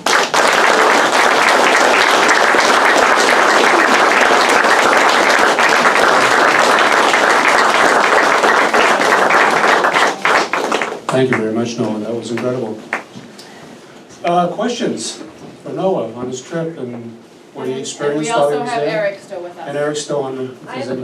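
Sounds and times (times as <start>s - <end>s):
audience applauding: 0.0s - 13.1s.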